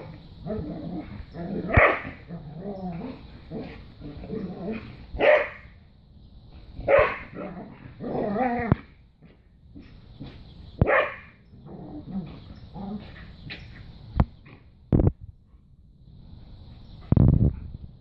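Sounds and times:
dogs barking: 0.0 - 2.4, 4.4 - 5.7, 6.8 - 8.8, 9.8 - 11.4
dogs growling: 0.0 - 5.1, 6.8 - 10.4, 11.5 - 13.6.

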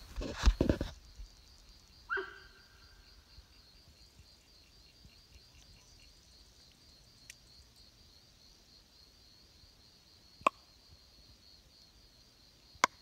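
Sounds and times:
insects chirring: 0.0 - 13.0
deer honking: 2.1 - 2.6.

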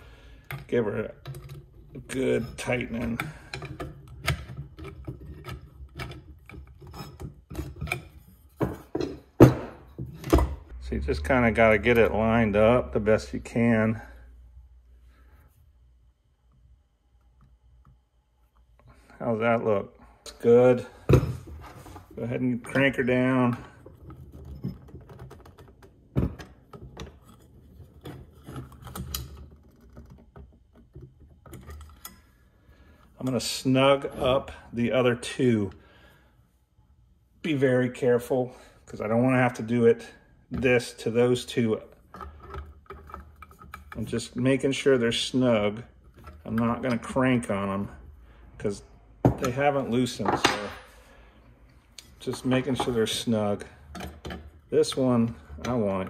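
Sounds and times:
metal fixture scraping and clicking: 0.5 - 9.2.

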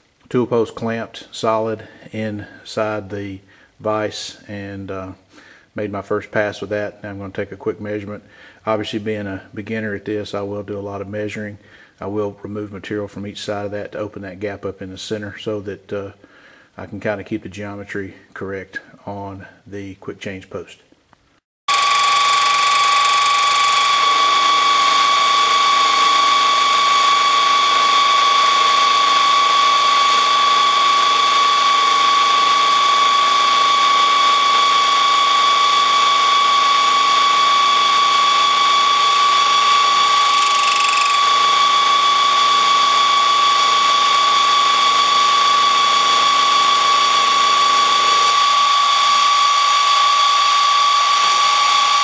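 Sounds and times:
milling machine whine: 21.7 - 52.0
sharp high machining sound: 21.7 - 52.0.

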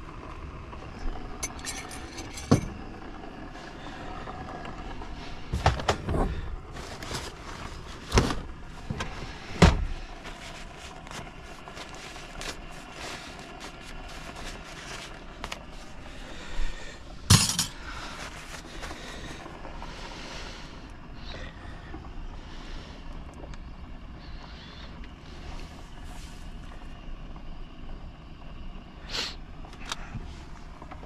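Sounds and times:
knocks and clunks: 5.5 - 6.4, 8.1 - 10.0.

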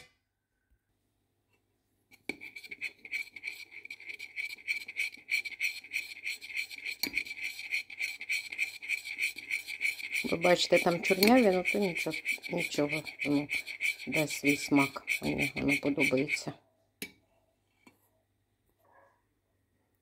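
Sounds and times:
metal spoon stirring in glass bowl: 2.1 - 16.6
foaming batter: 2.4 - 16.5.

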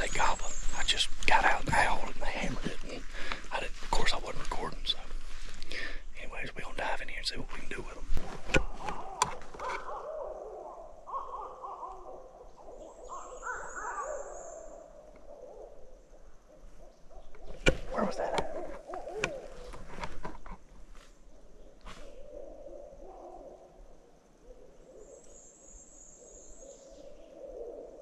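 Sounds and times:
owl hooting: 8.6 - 19.9, 21.4 - 28.0.

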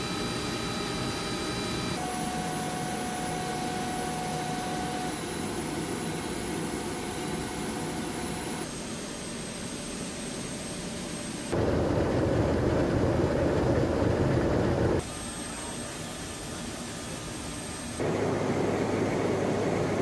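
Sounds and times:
aircraft engine noise: 11.5 - 15.0, 18.0 - 20.0.

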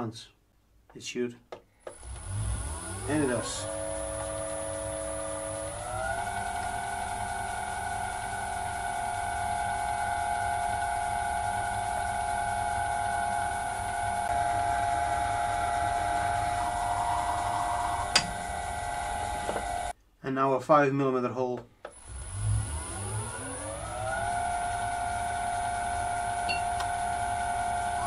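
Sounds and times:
faint drill cutting noise: 1.9 - 19.9
lathe motor whine: 1.9 - 19.9, 21.9 - 28.0.

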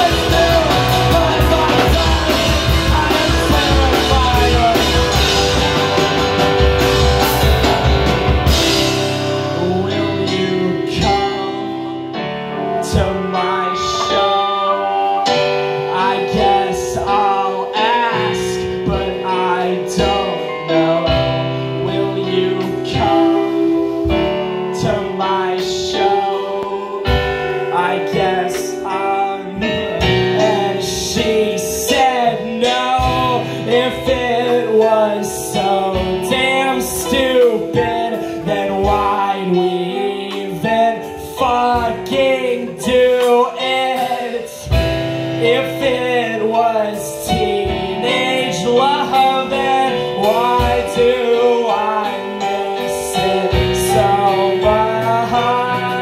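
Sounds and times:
drum hits: 0.0 - 9.8
live rock band playing: 0.0 - 56.0.

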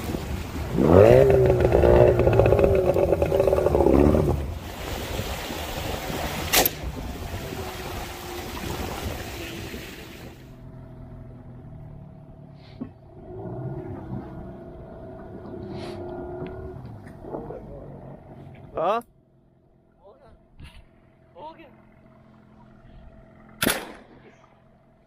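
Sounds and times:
outboard motor running: 0.0 - 25.0.

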